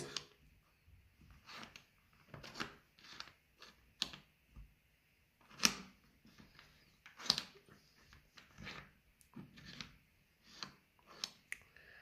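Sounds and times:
wooden puzzle pieces sliding: 0:00.0 - 0:00.4, 0:01.3 - 0:04.4, 0:05.4 - 0:11.5.

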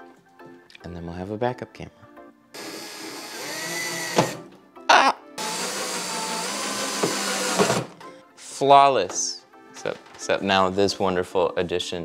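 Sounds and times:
cordless drill driving screws: 0:02.6 - 0:04.5, 0:05.4 - 0:08.0.

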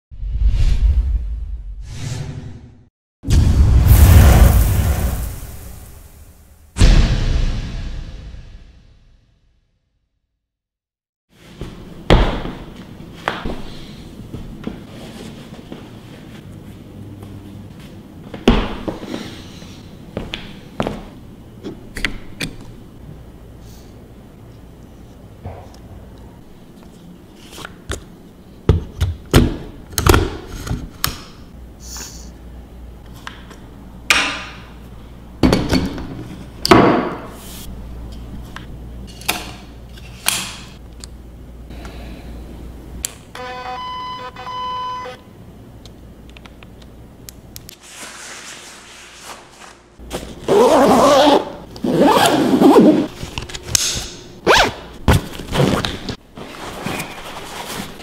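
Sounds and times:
electronic beeps: 0:43.4 - 0:45.2
backpack rasping: 0:50.4 - 0:53.1.

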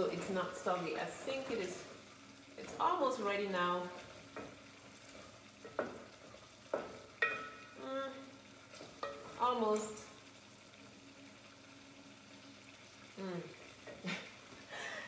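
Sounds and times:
faint frying sizzle: 0:00.0 - 0:15.0
spoon knocking against pan: 0:05.6 - 0:06.1, 0:06.7 - 0:07.8.

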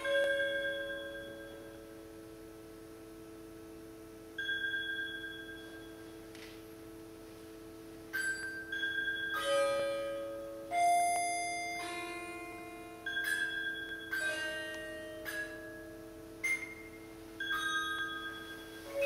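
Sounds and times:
music box notes ringing: 0:00.0 - 0:01.9, 0:08.1 - 0:19.0.

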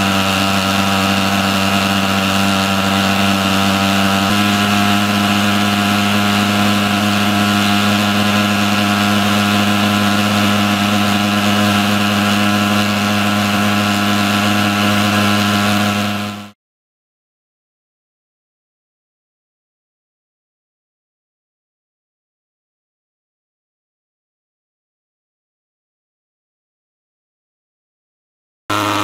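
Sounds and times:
pulse-jet engine drone: 0:00.0 - 0:16.6, 0:28.7 - 0:29.0.

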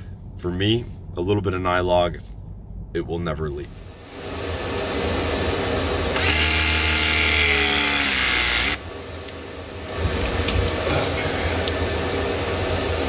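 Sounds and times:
quiet mechanical sound: 0:00.0 - 0:04.2, 0:06.1 - 0:13.0
press tool motor: 0:06.1 - 0:08.8.

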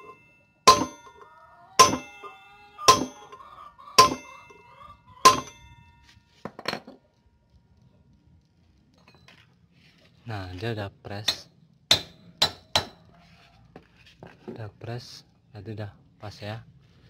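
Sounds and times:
hammer striking steel rod: 0:00.0 - 0:01.2, 0:01.8 - 0:02.3, 0:02.9 - 0:03.4, 0:04.0 - 0:04.5, 0:05.3 - 0:05.7, 0:11.2 - 0:13.0.

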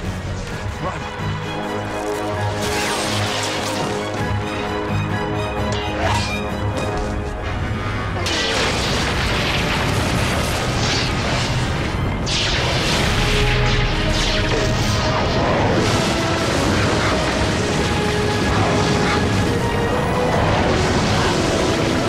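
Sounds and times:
dramatic orchestral music: 0:00.0 - 0:22.0
explosion with low rumble: 0:08.3 - 0:19.6.

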